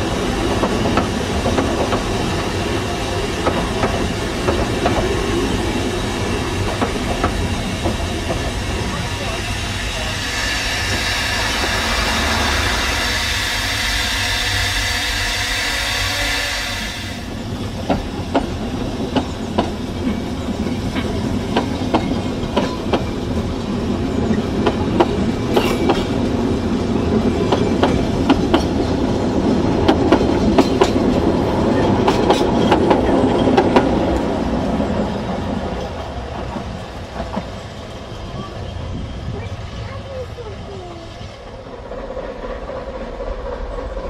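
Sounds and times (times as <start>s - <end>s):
train rumble: 0.0s - 44.0s
wheels clicking over rail joints: 27.0s - 34.4s.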